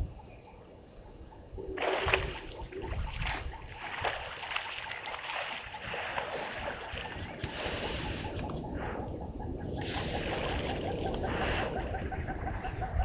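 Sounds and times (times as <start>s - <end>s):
faint high insect chirp: 0.0s - 13.0s
elephants splashing in water: 1.8s - 9.0s, 9.8s - 11.8s.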